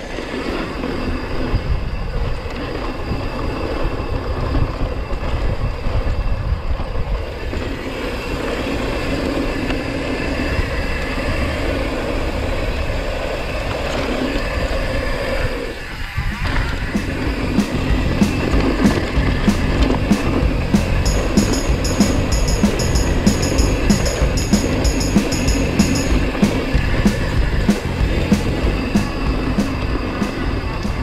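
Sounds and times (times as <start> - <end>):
wind rushing over microphone: 0.0 - 20.7.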